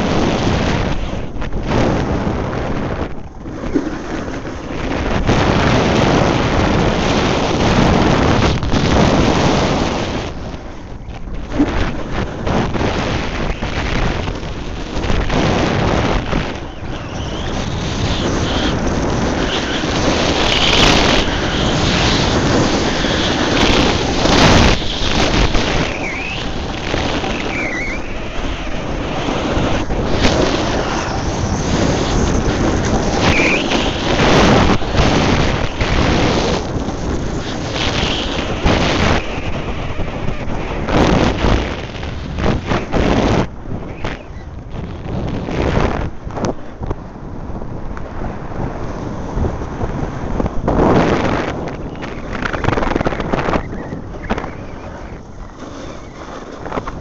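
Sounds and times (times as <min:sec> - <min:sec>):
snowboard edge scraping snow: 0:00.0 - 0:10.6, 0:11.5 - 0:43.5, 0:48.8 - 0:57.0
wind rushing over microphone: 0:00.0 - 0:57.0
short squeals dipping in pitch: 0:16.5 - 0:18.8, 0:24.4 - 0:28.8, 0:30.6 - 0:34.1.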